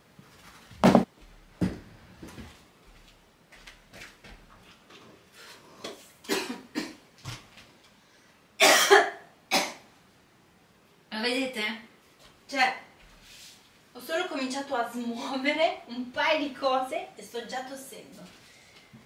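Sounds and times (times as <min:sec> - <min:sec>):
woman coughing: 0:06.3 - 0:07.0, 0:08.6 - 0:09.8.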